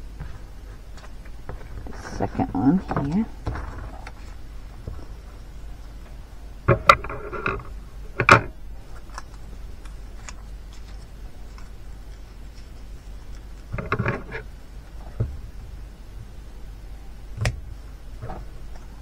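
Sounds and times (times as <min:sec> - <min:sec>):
paper rustling: 0:08.8 - 0:14.5.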